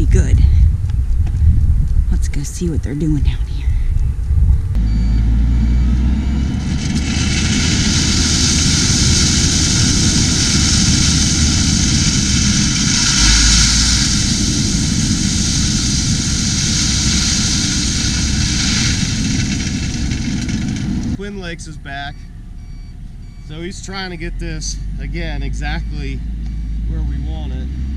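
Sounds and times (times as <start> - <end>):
truck engine rumble: 0.0 - 27.9
rock pouring hiss: 7.0 - 20.4.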